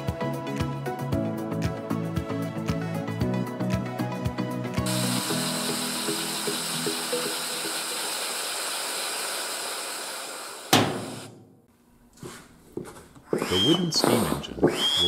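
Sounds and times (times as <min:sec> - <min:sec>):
music: 0:00.0 - 0:08.0
compressed air hissing: 0:04.9 - 0:11.4
sharp knock: 0:10.7 - 0:11.6.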